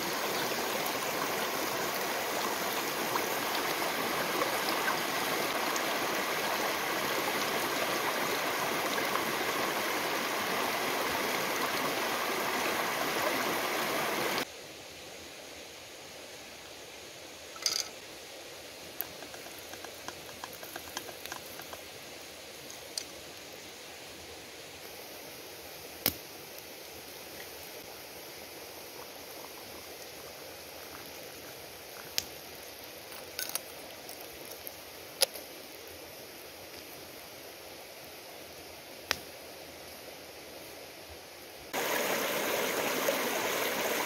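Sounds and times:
wood fire crackling: 30.8s - 35.9s.

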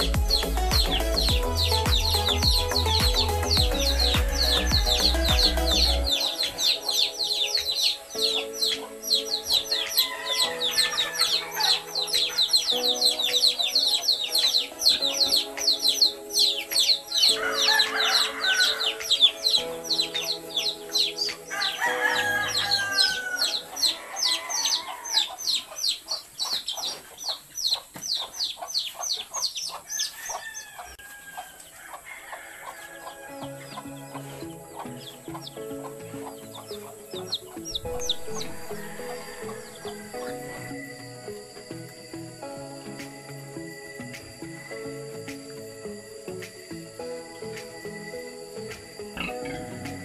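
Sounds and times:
background music: 0.0s - 26.5s, 29.6s - 50.0s
high chirps: 0.0s - 30.4s, 33.0s - 50.0s
chickens clucking: 0.0s - 41.0s
rooster crowing: 6.1s - 12.8s, 17.1s - 26.0s, 29.9s - 33.9s, 37.8s - 41.0s.

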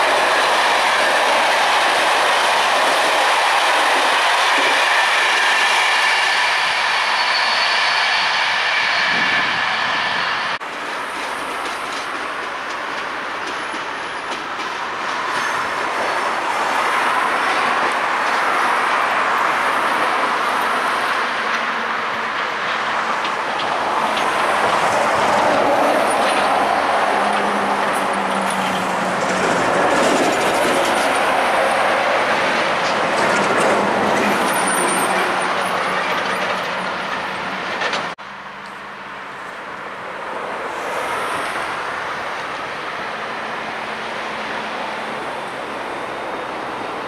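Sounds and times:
train rumbling on rails: 0.0s - 47.0s.

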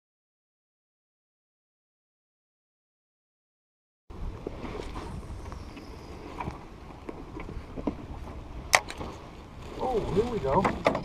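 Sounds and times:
wind buffeting microphone: 4.1s - 11.0s.

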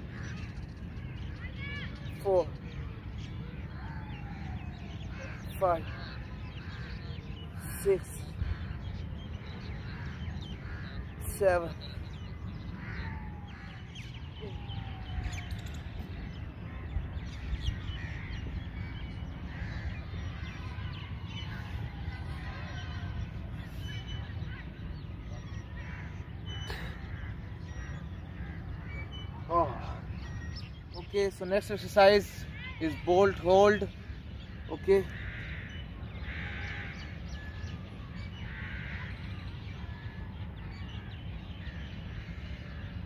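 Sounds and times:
low background rumble: 0.0s - 31.6s
birds chirping: 0.0s - 43.0s
harsh bird calls: 0.0s - 43.0s
crow cawing: 34.6s - 37.5s, 38.4s - 39.4s.

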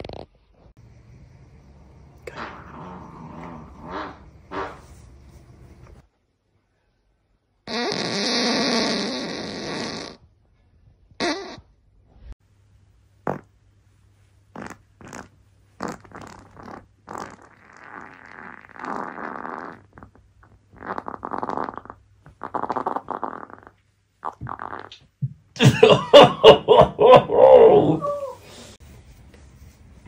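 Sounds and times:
farts: 2.3s - 4.8s, 7.7s - 10.3s, 11.2s - 11.8s, 13.2s - 13.5s, 14.5s - 25.1s.

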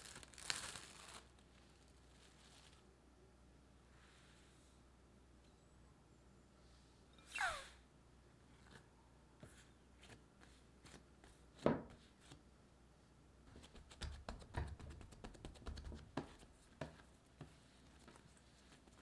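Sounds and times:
dough thud: 13.5s - 17.6s
dough pats and slaps: 13.5s - 19.0s.

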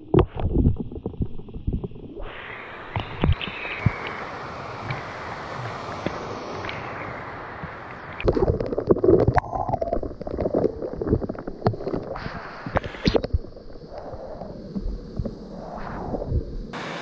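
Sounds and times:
waterfall rushing: 2.2s - 8.7s, 16.8s - 17.0s.

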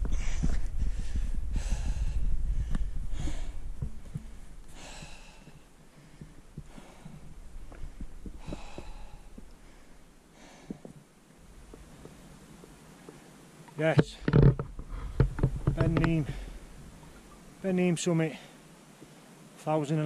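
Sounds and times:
wind buffeting microphone: 0.0s - 10.0s, 14.1s - 17.4s
person breathing hard: 0.0s - 11.0s.

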